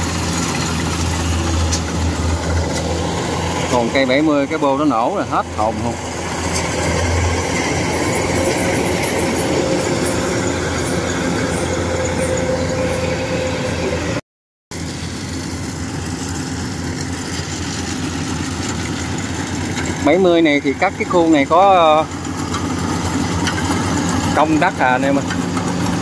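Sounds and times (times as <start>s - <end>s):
combine harvester engine drone: 0.0s - 26.0s.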